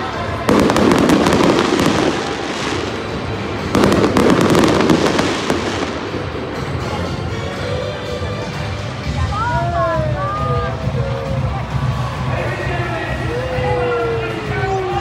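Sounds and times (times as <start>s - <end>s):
rumble of fireworks bursts: 0.0s - 7.7s
fireworks booms and pops: 0.5s - 6.3s.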